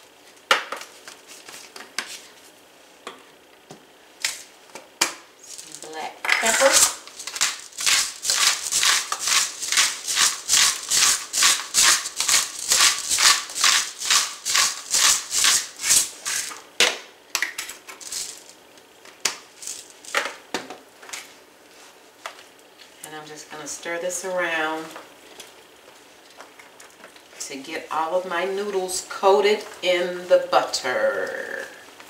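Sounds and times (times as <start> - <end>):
pepper mill grinding: 5.4 - 16.6, 17.8 - 18.6, 19.6 - 20.3.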